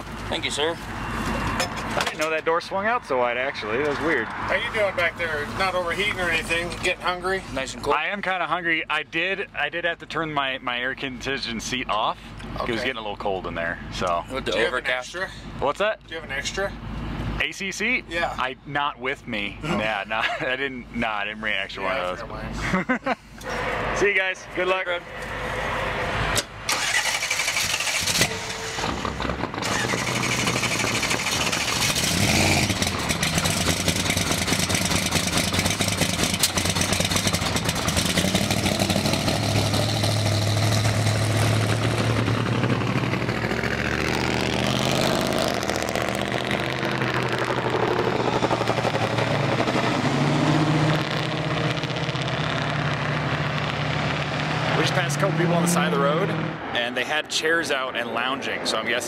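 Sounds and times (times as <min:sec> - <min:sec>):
car engine driving off: 0:26.2 - 0:56.7.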